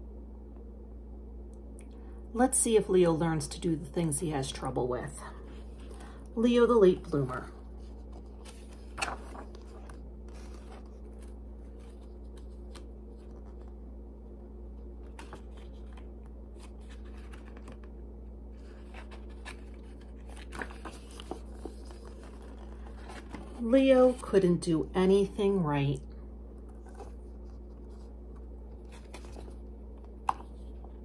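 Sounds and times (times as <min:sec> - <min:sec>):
steady low hum: 0:00.0 - 0:31.0
book pages rustling: 0:06.8 - 0:13.8, 0:14.9 - 0:24.4, 0:26.5 - 0:31.0.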